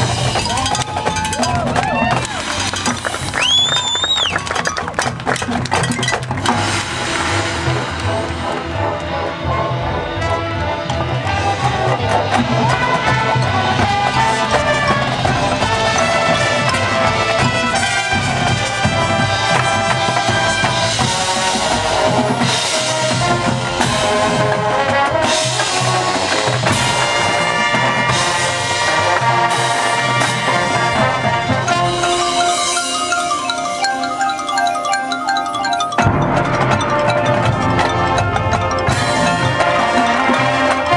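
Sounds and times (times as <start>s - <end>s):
marimbas and xylophones: 0.0s - 9.8s, 10.4s - 40.9s
marching band with brass and drums: 0.0s - 40.9s.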